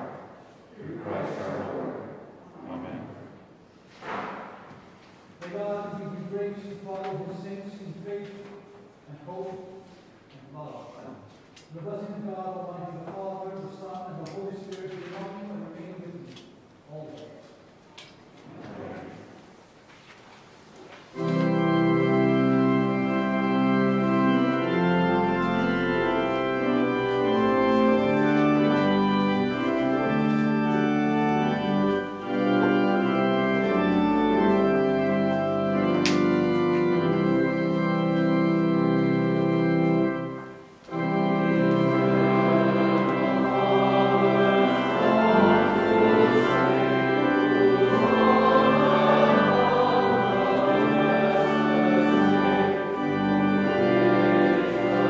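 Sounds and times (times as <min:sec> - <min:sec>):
church organ sustained chords: 0:00.0 - 0:03.3, 0:21.1 - 0:55.0.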